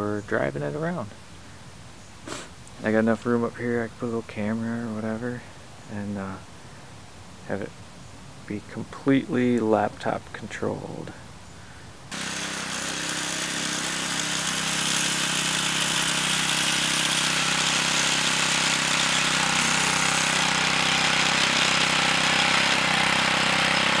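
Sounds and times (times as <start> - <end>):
lawnmower engine running: 12.1 - 24.0.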